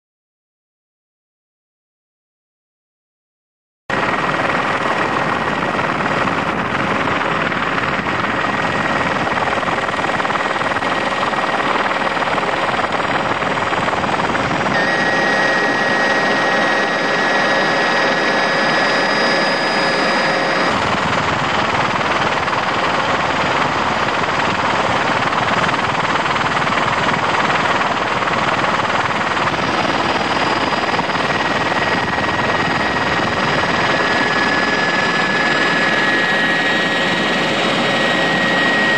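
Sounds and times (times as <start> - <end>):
helicopter engine and rotor: 3.9 - 38.9
faint high whine: 14.7 - 21.0, 29.4 - 38.9.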